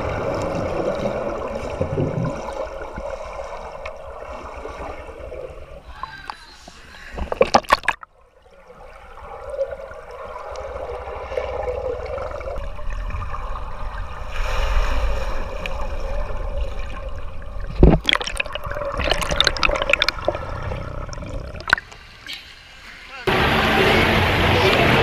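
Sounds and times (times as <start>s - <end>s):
muffled underwater water wash: 0.0s - 25.0s
clicks and splashes: 7.1s - 8.1s, 16.8s - 22.0s.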